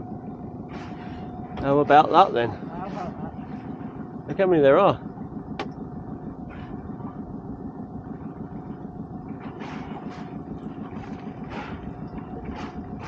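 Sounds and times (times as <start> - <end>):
outboard engine idling: 0.0 - 13.0
dolphins blowing puffs: 0.7 - 1.4, 9.3 - 13.0.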